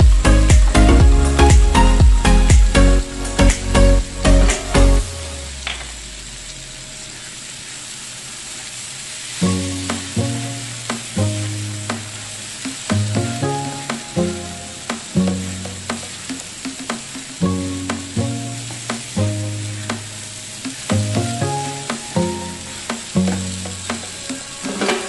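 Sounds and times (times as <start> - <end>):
background music with held notes: 0.0 - 6.9, 9.4 - 25.0
squash sizzling in a frying pan: 5.5 - 25.0.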